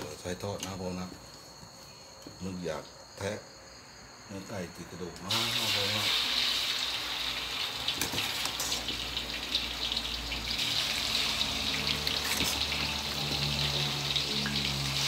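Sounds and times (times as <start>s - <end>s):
chicken deep-frying in hot oil: 5.2s - 15.0s.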